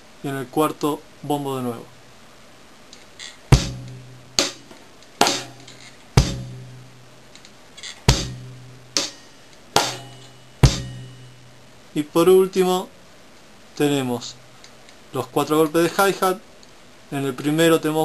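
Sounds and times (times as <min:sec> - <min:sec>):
bass drum: 0:03.5 - 0:07.1, 0:08.0 - 0:09.2, 0:09.8 - 0:11.6
hi-hat strokes: 0:03.5 - 0:07.2, 0:07.9 - 0:11.7.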